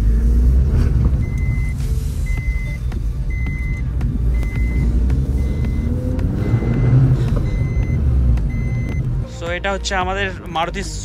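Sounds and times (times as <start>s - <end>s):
car exhaust drone inside cabin: 0.0s - 9.4s
high beep: 1.2s - 9.1s.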